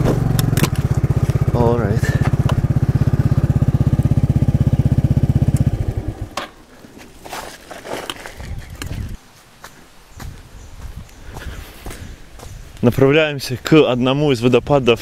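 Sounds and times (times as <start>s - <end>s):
scooter engine idling: 0.0s - 6.4s.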